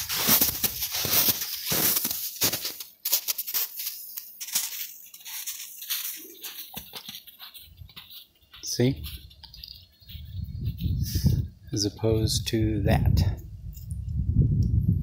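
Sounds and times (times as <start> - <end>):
footsteps crunching in snow: 0.0 - 12.0.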